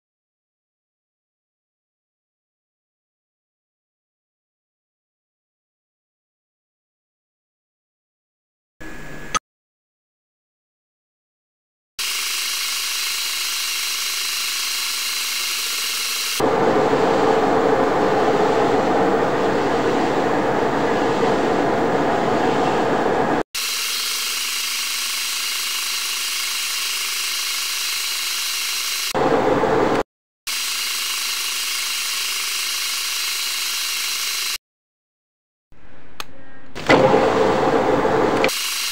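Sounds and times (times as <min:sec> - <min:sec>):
metal lathe whining: 0:12.0 - 0:28.0.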